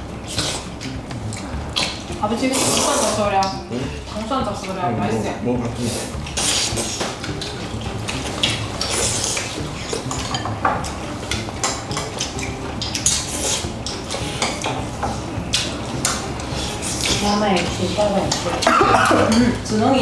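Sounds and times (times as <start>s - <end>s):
chopsticks clinking on bowls: 6.6s - 19.6s.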